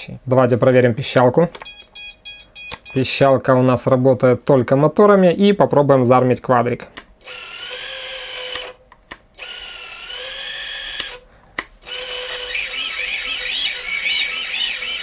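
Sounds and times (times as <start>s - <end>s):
quadcopter motors whining: 11.8s - 15.0s.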